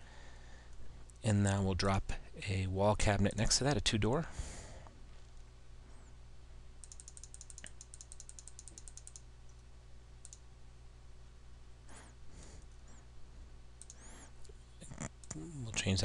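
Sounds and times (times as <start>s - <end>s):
low electrical hum: 0.0s - 16.0s
mouse scroll wheel ticking: 6.8s - 9.2s.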